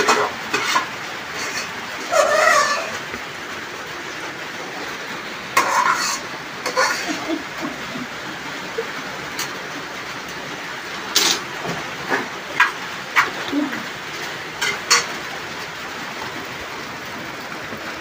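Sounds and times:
metal pots clinking and clattering: 0:00.0 - 0:03.2, 0:05.5 - 0:08.1, 0:08.8 - 0:09.6, 0:11.1 - 0:15.7
rain hissing: 0:00.0 - 0:18.0.

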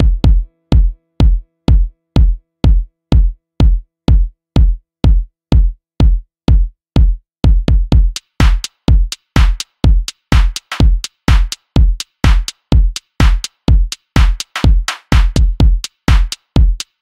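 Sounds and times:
electronic dance music: 0:00.0 - 0:02.3, 0:08.1 - 0:17.0
drum machine kick drum: 0:00.0 - 0:17.0.

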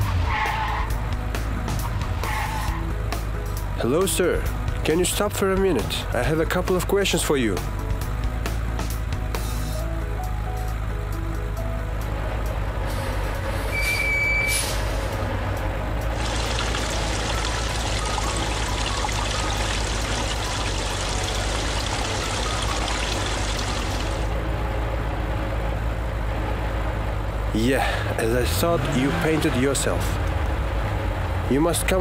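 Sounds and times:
truck engine rumble: 0:00.0 - 0:32.0
water gushing from nozzle: 0:16.2 - 0:24.3.

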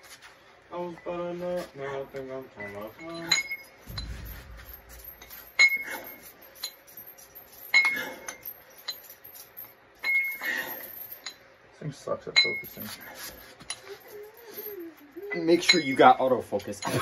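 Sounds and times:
dumbbell plates clinking: 0:02.9 - 0:11.5
small rattles: 0:03.8 - 0:11.4.

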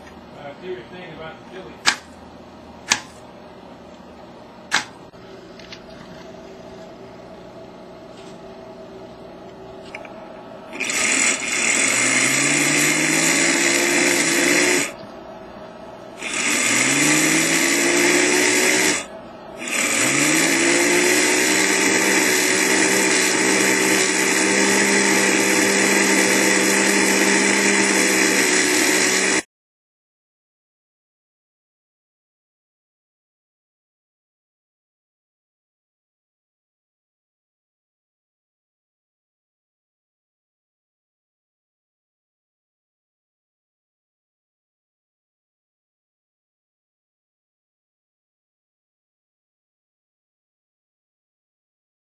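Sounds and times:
small electric motor whining: 0:10.7 - 0:15.0, 0:16.2 - 0:29.4.

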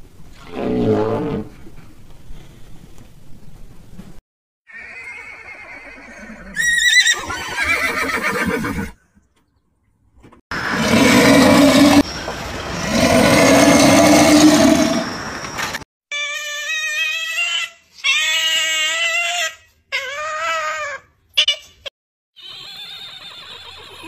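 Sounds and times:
high-pitched wavering animal call: 0:10.6 - 0:15.3.

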